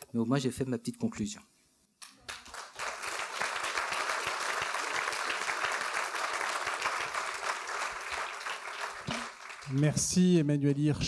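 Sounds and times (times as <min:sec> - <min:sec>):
audience applauding: 0:02.0 - 0:10.2.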